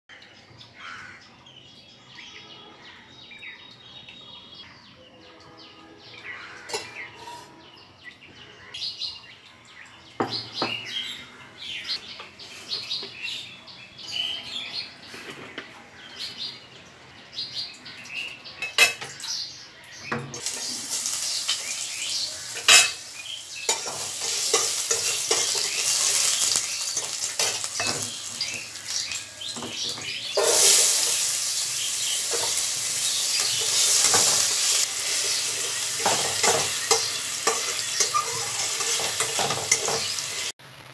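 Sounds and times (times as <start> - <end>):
birds chirping: 0.1 - 40.5
food sizzling in hot oil: 6.2 - 7.6, 20.2 - 40.9
dishes and utensils clinking: 6.6 - 7.6, 18.6 - 19.4, 20.0 - 40.5.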